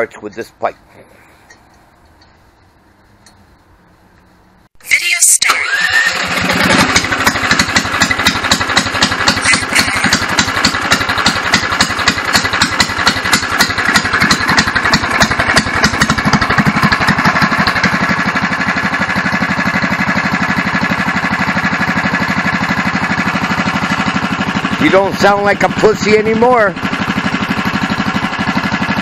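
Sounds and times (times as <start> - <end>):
go-kart engine running: 5.5 - 29.0.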